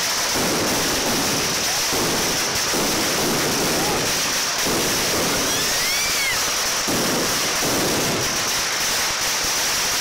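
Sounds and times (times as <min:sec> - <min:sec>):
firecrackers crackling: 0:00.0 - 0:10.0
rising and falling whistle: 0:05.4 - 0:06.5.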